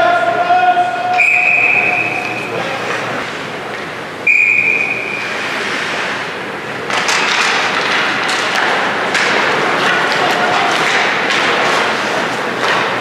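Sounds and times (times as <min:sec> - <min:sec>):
referee's whistle: 0:01.1 - 0:02.6, 0:04.2 - 0:05.4.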